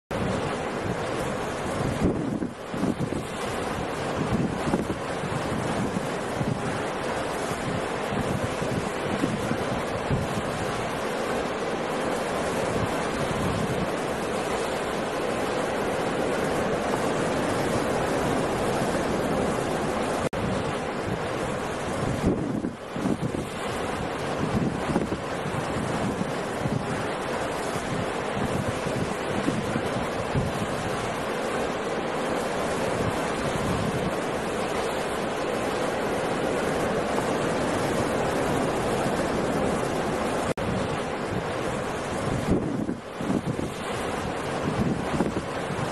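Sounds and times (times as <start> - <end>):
heavy surf breaking waves: 0.1 - 45.9
wind: 0.1 - 45.9.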